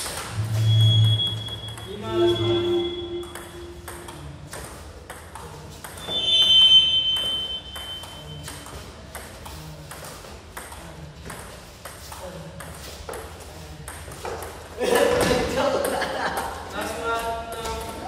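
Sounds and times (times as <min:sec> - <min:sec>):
loud high squeak: 0:00.3 - 0:04.0, 0:06.0 - 0:08.5.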